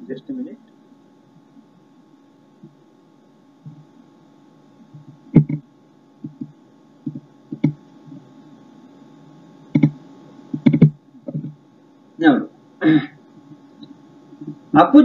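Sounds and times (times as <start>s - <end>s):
faint electrical hum: 0.0s - 15.0s
sharp clicks: 9.7s - 10.0s.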